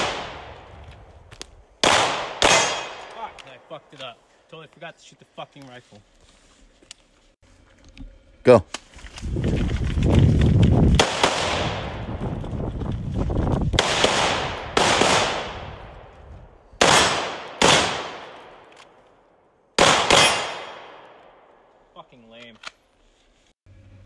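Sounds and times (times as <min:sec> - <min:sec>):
gunshots echoing among trees: 0:00.0 - 0:00.8, 0:01.8 - 0:04.1, 0:10.9 - 0:12.1, 0:13.8 - 0:16.2, 0:16.8 - 0:21.9.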